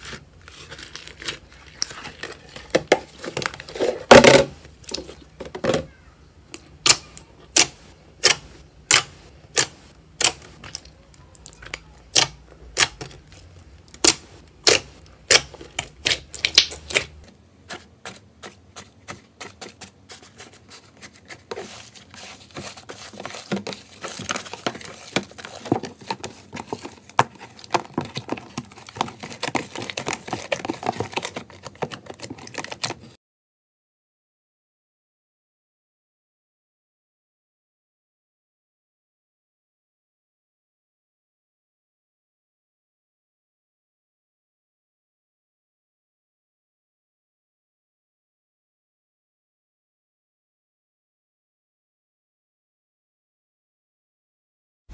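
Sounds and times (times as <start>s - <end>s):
beaded slime crackling: 6.8s - 17.2s.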